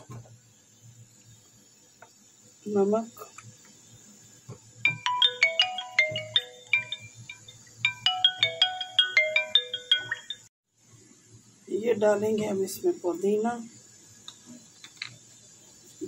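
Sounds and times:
marimba phone ringtone: 4.9 - 10.5.

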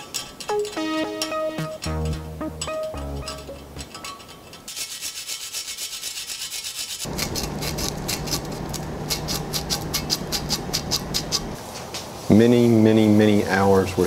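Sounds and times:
scraping paint off steel frame: 3.9 - 12.3
abrasive pad sanding: 4.7 - 13.4
low steady hum: 7.1 - 11.6.

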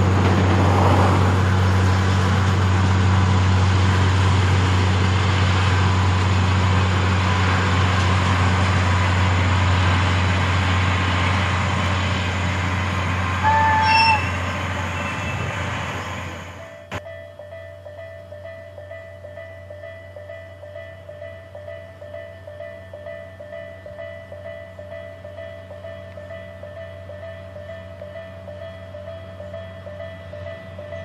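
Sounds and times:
locomotive engine drone: 0.0 - 31.0
train rushing on rails: 0.0 - 31.0
train whistle toot: 13.4 - 15.5.

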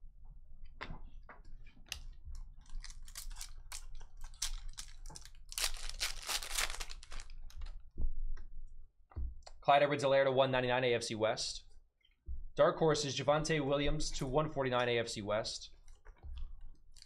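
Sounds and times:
foil wrapper tearing and crinkling: 2.8 - 7.3.

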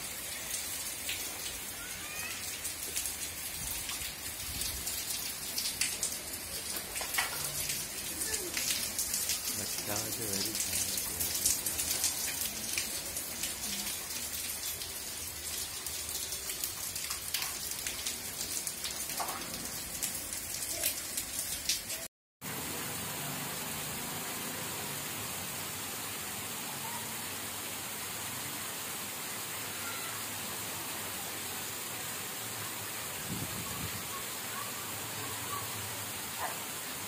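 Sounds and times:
heavy rain falling: 0.0 - 37.0
raindrops ticking on a surface: 0.4 - 22.1.

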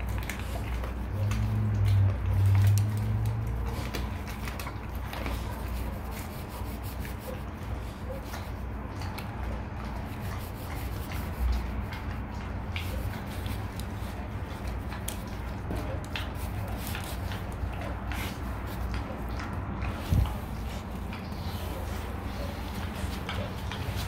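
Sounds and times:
dog chewing meat and bone: 0.0 - 24.0.

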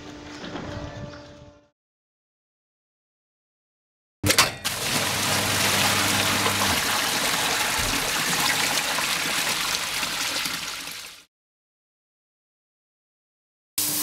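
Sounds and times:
water gushing out of drain: 4.7 - 11.3.

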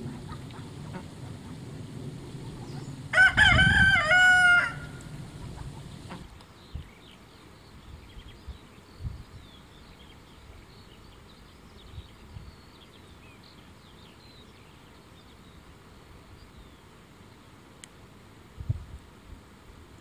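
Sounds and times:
small birds chirping: 0.0 - 3.3, 4.7 - 15.7
low rumble: 0.0 - 6.2.

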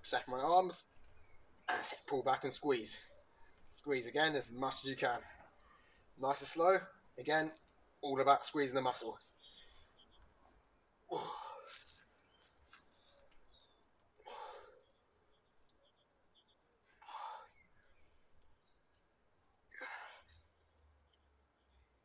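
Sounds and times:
faint birdsong: 0.0 - 22.0
man breathing out hard: 17.0 - 17.6.

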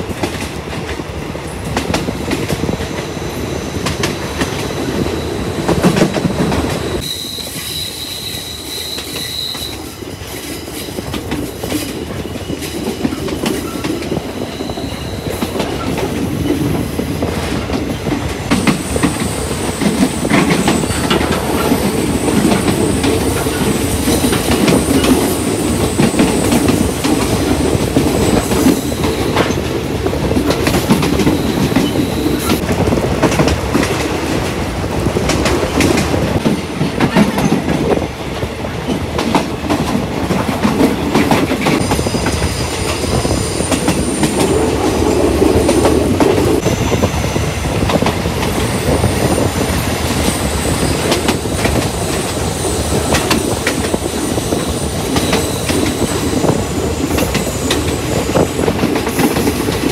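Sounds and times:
train wheels rumbling: 0.0 - 59.9
high wheel squeal: 6.7 - 11.1, 12.2 - 15.9, 41.8 - 47.8, 48.5 - 58.7.

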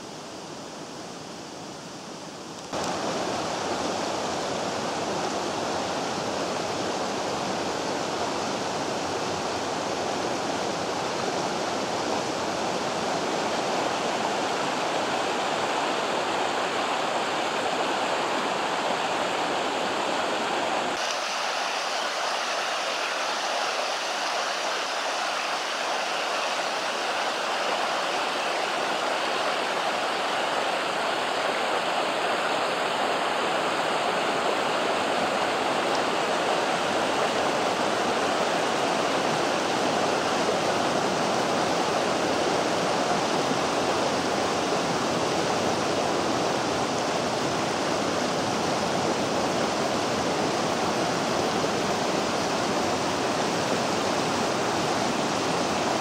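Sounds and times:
river rushing over rapids: 0.0 - 56.0.

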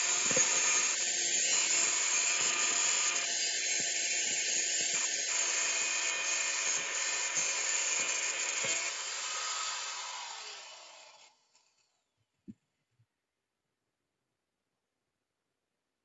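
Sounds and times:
angle grinder cutting metal: 0.0 - 11.9.

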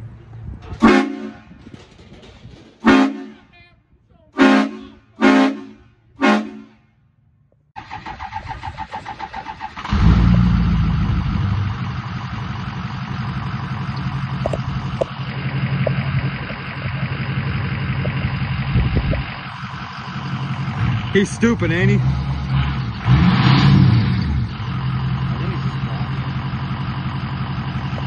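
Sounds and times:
diesel engine idling: 4.0 - 28.0
starter cranking engine: 7.8 - 10.4.

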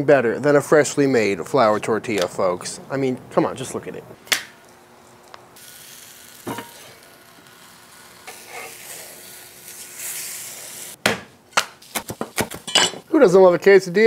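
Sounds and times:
quesadilla sizzling on griddle: 5.5 - 11.0.

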